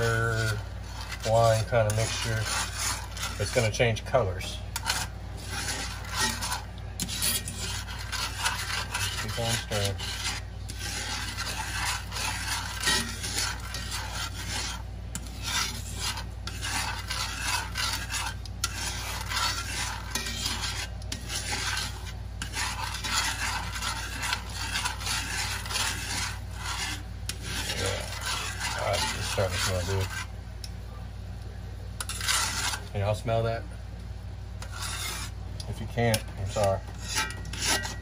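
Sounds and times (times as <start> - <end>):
sauce sizzling and bubbling: 0.0 - 3.6, 4.8 - 30.5
metal tongs scraping pan: 0.0 - 30.3, 32.0 - 32.9, 34.6 - 38.0.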